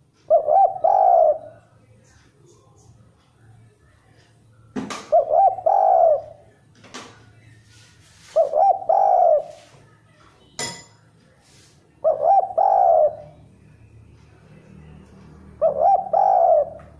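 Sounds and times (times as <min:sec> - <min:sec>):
dove cooing: 0:00.0 - 0:01.6, 0:05.0 - 0:06.5, 0:08.2 - 0:09.7, 0:12.0 - 0:13.4, 0:15.6 - 0:16.9.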